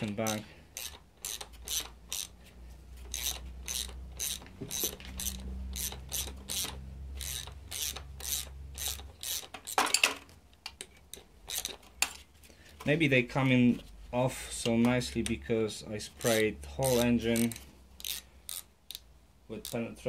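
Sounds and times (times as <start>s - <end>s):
hand ratchet clicking: 0.0s - 9.9s, 10.7s - 12.0s, 16.2s - 20.0s.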